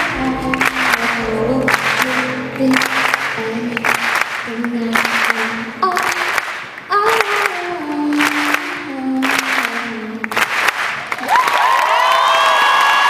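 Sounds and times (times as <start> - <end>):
grand piano: 0.0 - 8.9
woman singing: 0.0 - 10.4
audience applause: 8.2 - 13.0
crowd cheering and shouting: 11.2 - 13.0.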